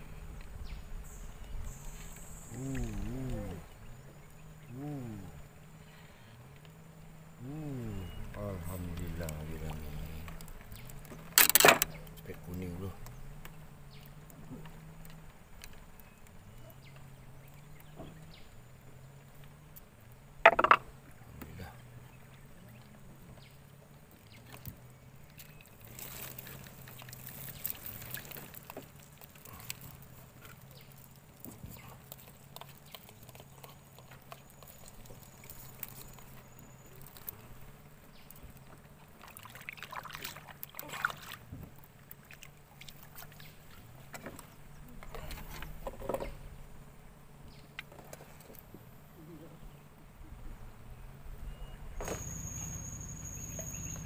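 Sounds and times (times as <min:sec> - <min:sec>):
low hum changing pitch: 0:00.0 - 0:11.0
water lapping at hull: 0:00.0 - 0:50.5
fishing tackle knocks and rustles: 0:08.8 - 0:12.4, 0:20.4 - 0:21.4, 0:24.4 - 0:37.3, 0:41.4 - 0:46.5.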